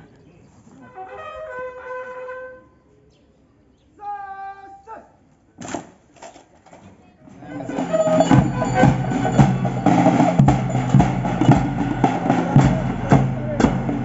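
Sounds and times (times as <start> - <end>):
drumming: 7.3 - 14.0.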